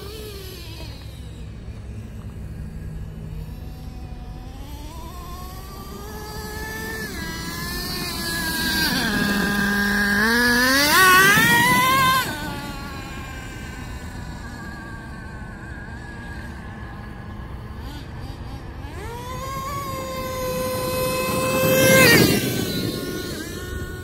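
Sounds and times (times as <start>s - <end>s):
rc truck engine revving: 0.0s - 24.0s.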